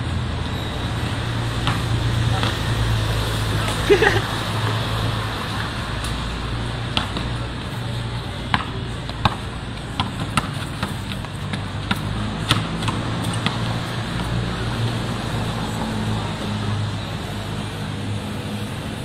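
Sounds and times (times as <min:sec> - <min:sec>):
basketball bouncing on concrete: 0:01.5 - 0:02.8, 0:06.8 - 0:14.6.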